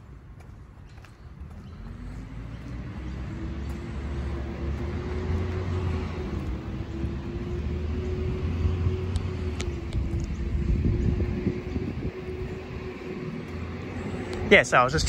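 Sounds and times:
vehicle whine: 0.0 - 15.0
low rumble: 3.7 - 15.0.

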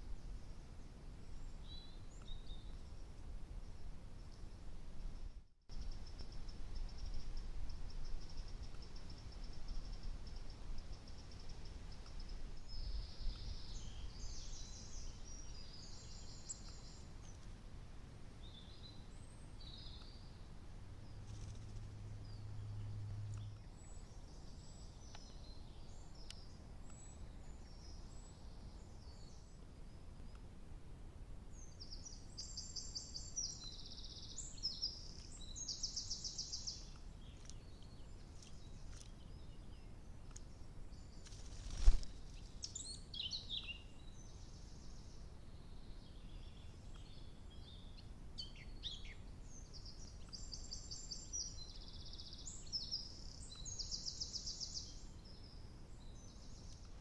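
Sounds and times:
steady low hiss: 0.0 - 57.0.

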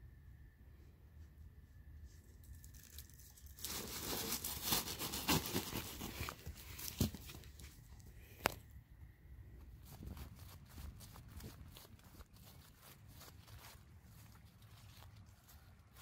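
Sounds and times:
plastic sheeting crinkling: 2.5 - 7.7, 9.8 - 16.0.

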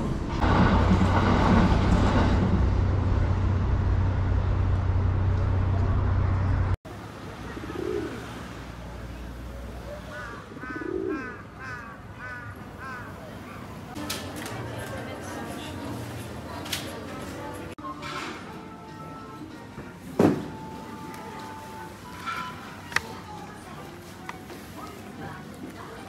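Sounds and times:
train rumbling past: 0.0 - 9.6
pigeons cooing: 7.5 - 8.3, 10.0 - 13.8.

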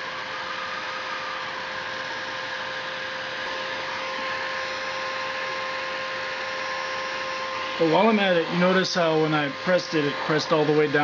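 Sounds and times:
heat gun fan hissing: 0.0 - 11.0.

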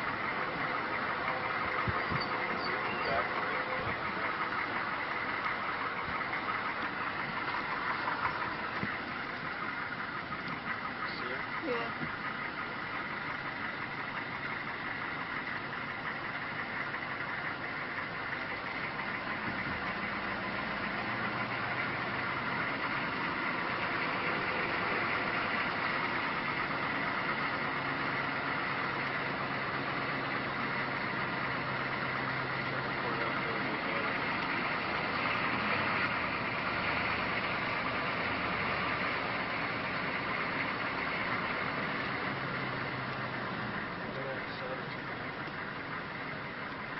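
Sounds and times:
engine running with low hum: 0.0 - 46.9.

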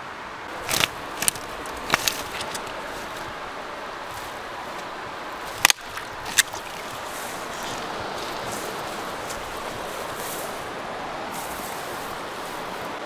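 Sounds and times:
steady background rush: 0.0 - 13.0
fishing line and twigs snapping: 0.6 - 3.4, 5.5 - 10.6.

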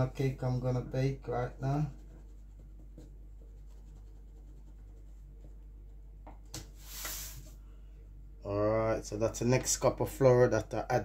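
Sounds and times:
low kitchen hum: 0.0 - 11.0
mug scooping flour rustle: 6.8 - 7.6.

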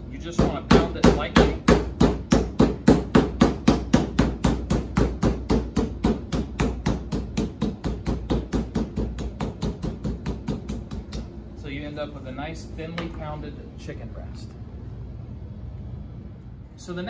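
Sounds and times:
meat mallet pounding chicken: 0.4 - 11.3.

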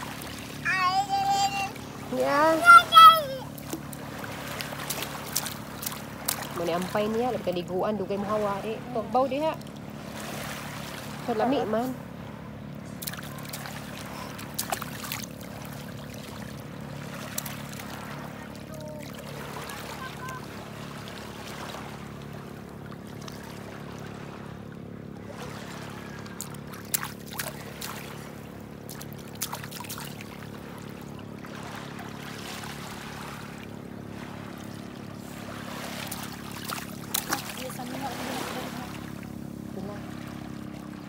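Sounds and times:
seawater lapping over pebbles: 0.0 - 41.0
steady low hum: 0.0 - 41.0
hands slapping water: 3.5 - 6.9, 12.9 - 20.4, 26.2 - 30.5, 35.7 - 38.5.

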